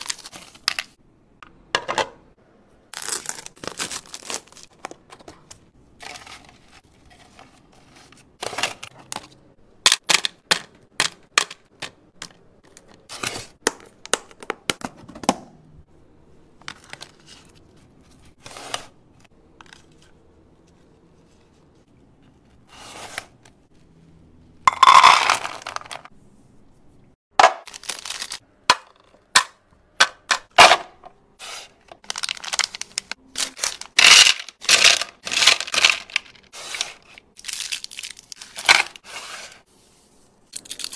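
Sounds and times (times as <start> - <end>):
cellophane crinkling and tearing: 0.0 - 0.6, 2.9 - 5.0, 27.6 - 28.4, 32.0 - 39.1
candies clattering onto plastic: 24.7 - 26.1, 27.4 - 29.0, 32.0 - 39.0.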